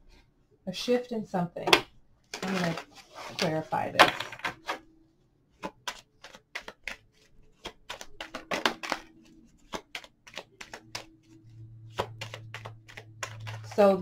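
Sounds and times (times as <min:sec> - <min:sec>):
cards being shuffled: 0:02.3 - 0:04.8, 0:05.6 - 0:14.0.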